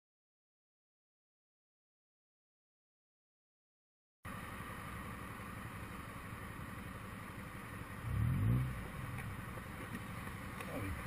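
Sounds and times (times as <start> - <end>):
motorcycle engine idling: 4.3 - 11.0
motorcycle engine revving: 8.0 - 9.6.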